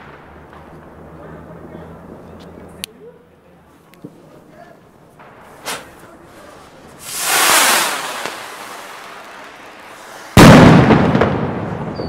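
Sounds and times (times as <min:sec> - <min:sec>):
firework bang: 0:05.2 - 0:12.0
firework rocket hissing: 0:05.5 - 0:11.6.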